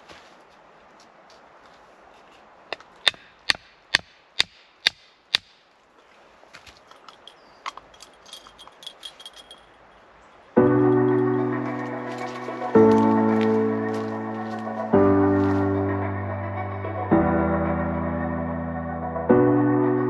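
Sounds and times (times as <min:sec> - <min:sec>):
hatchet striking wooden stake: 0:02.7 - 0:05.6
clicks and rustling: 0:06.6 - 0:09.7.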